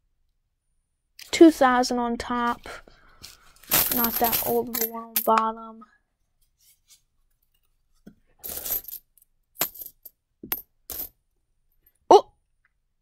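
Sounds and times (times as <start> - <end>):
coins clinking: 3.6 - 5.4, 8.4 - 9.0, 9.6 - 11.1.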